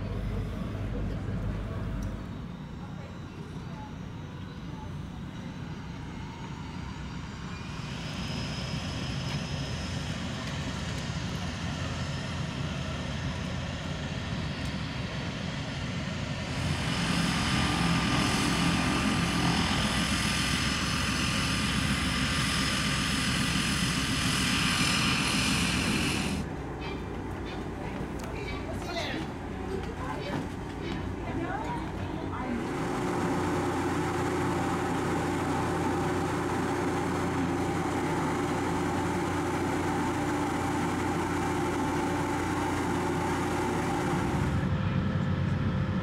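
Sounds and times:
motor engine running: 0:16.3 - 0:26.4, 0:32.2 - 0:46.0
whining tones: 0:16.4 - 0:27.1.

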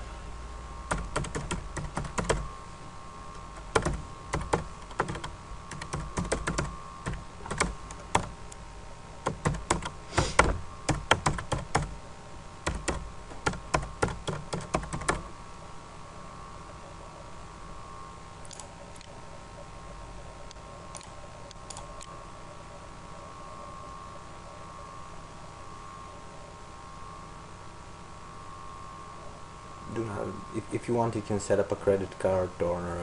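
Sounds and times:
faint steady hum: 0:00.0 - 0:33.0
typing on computer keyboard: 0:00.9 - 0:02.4, 0:03.6 - 0:08.3, 0:09.2 - 0:11.9, 0:12.7 - 0:15.3.

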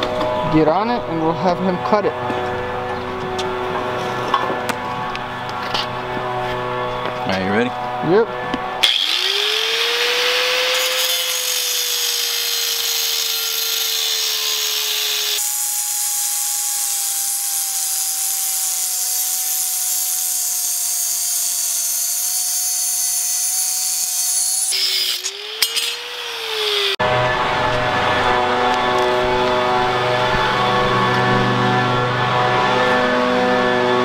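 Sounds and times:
angle grinder cutting steel: 0:07.3 - 0:34.0.

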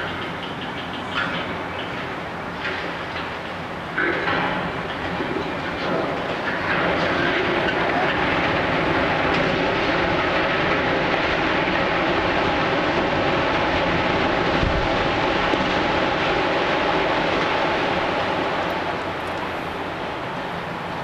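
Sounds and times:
building collapsing rumble: 0:04.0 - 0:19.2.

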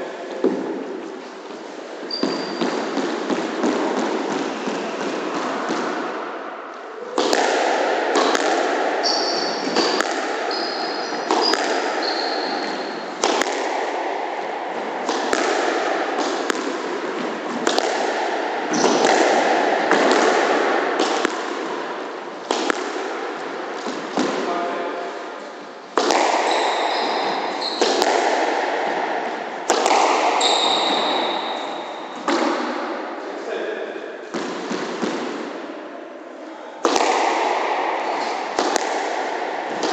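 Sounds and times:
sneakers squeaking on wooden floor: 0:02.0 - 0:05.1, 0:09.0 - 0:13.2, 0:18.7 - 0:19.1, 0:26.4 - 0:28.1, 0:30.3 - 0:32.3
squash ball hitting rackets and walls: 0:02.0 - 0:25.0, 0:25.9 - 0:35.9, 0:36.8 - 0:39.9.

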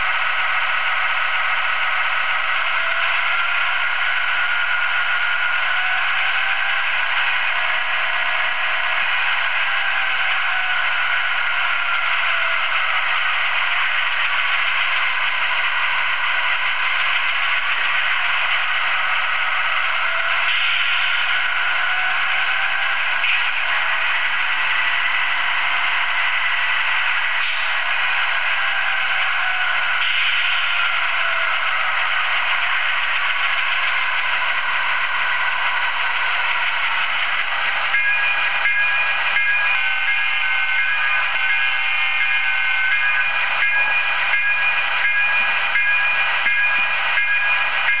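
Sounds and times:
model locomotive engine sound: 0:00.0 - 0:48.0.

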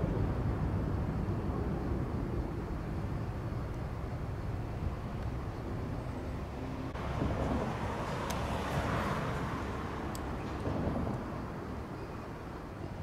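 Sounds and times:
distant vehicle rumbling hiss: 0:00.0 - 0:13.0.

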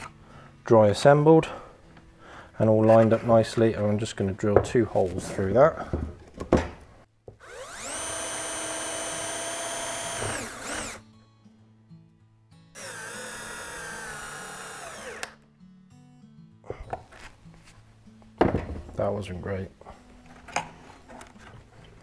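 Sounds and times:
cordless drill whining: 0:07.4 - 0:11.0, 0:12.8 - 0:15.4.

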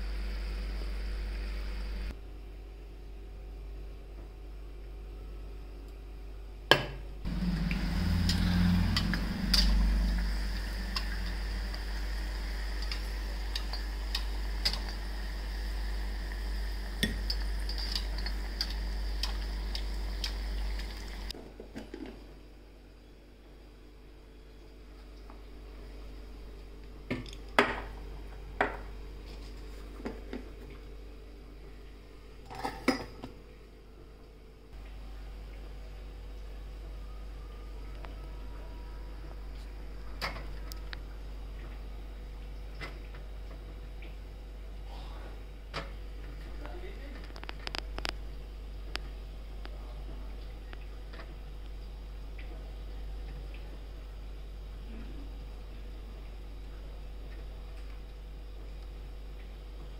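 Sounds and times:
steady low hum: 0:00.0 - 0:59.9
low hum: 0:07.1 - 0:21.4
hot oil sizzling: 0:07.3 - 0:21.3
metal bowls and spoon clinking: 0:07.5 - 0:10.2, 0:17.0 - 0:18.8, 0:32.4 - 0:33.3.

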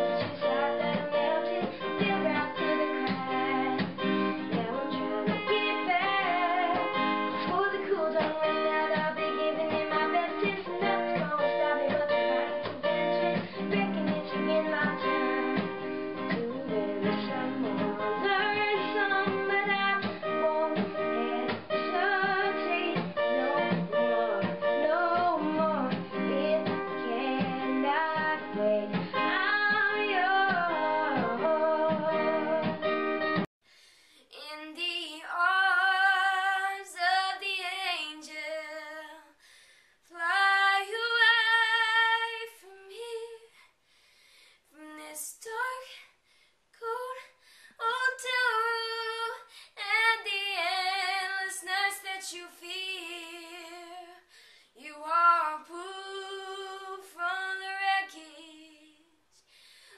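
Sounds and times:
boy singing: 0:00.0 - 0:32.8
acoustic guitar strumming: 0:00.0 - 0:33.5.

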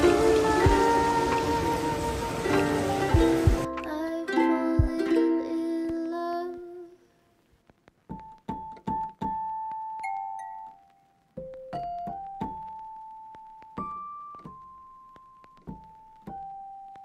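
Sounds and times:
piano chord and single notes: 0:00.0 - 0:05.0.

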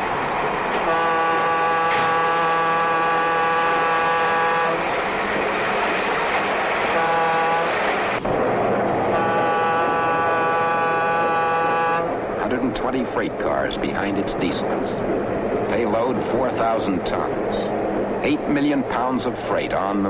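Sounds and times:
train rumble: 0:00.0 - 0:20.0
locomotive air horn blasts: 0:00.8 - 0:04.8, 0:06.9 - 0:07.9, 0:09.1 - 0:12.2.

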